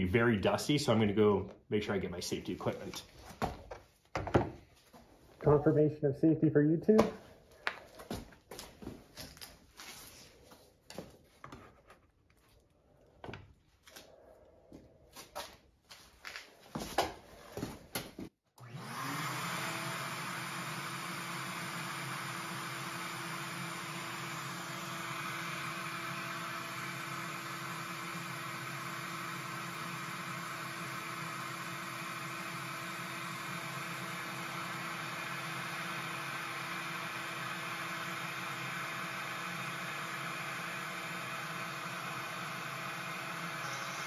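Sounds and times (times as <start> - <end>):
router motor whine: 18.6 - 44.0.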